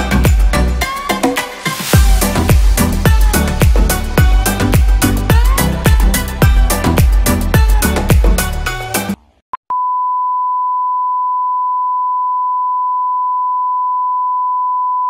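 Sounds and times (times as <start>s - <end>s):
background music: 0.0s - 9.4s
steady test tone beep: 9.6s - 15.0s.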